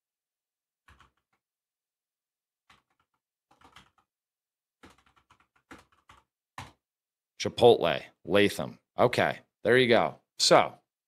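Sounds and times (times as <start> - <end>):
faint keyboard typing: 0.9 - 1.4, 2.7 - 4.1, 4.8 - 6.8.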